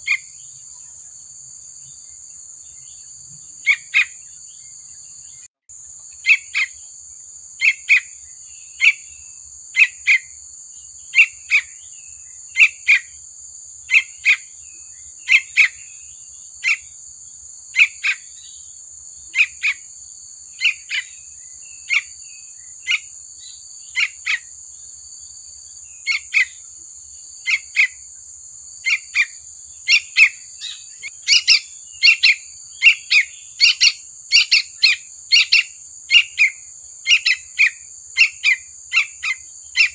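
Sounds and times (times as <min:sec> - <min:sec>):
bird calling: 0:02.8 - 0:05.5, 0:06.1 - 0:06.8, 0:07.6 - 0:10.4, 0:11.1 - 0:13.2, 0:13.9 - 0:17.0, 0:17.7 - 0:18.7, 0:19.3 - 0:19.9, 0:20.6 - 0:24.5, 0:25.9 - 0:26.7, 0:27.4 - 0:28.1, 0:28.8 - 0:39.9.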